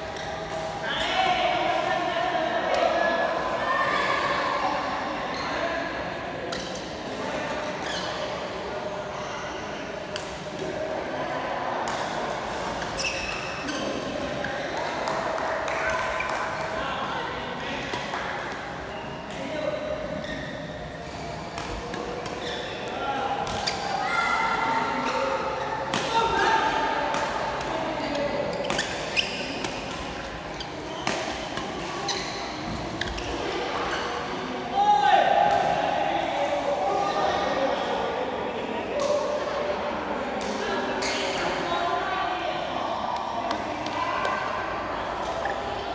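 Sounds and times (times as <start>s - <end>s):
voices in a hall: 0.0s - 45.9s
shoe squeaks on court: 7.8s - 8.3s, 12.8s - 14.8s, 20.1s - 21.3s, 22.4s - 22.9s, 28.0s - 29.6s, 30.5s - 34.2s.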